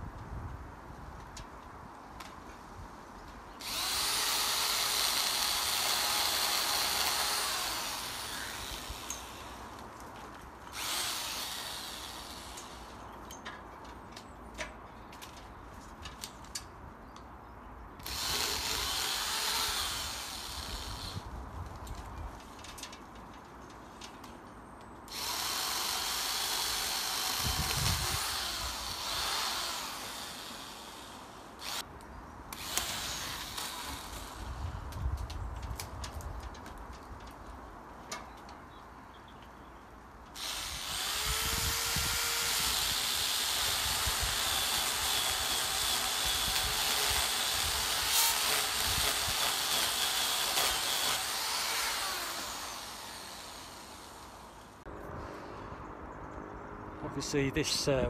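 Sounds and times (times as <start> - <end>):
electric pole saw whining: 3.6 - 9.8, 10.7 - 13.0, 18.0 - 21.3, 25.1 - 31.9, 32.5 - 34.6, 40.3 - 54.8.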